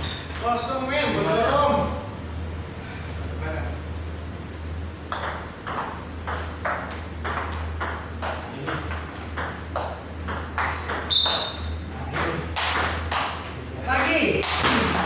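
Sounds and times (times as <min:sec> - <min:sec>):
ping pong ball bouncing on table: 0:05.1 - 0:13.4
ping pong ball hitting bats: 0:05.1 - 0:15.0
high squeak: 0:10.7 - 0:11.9.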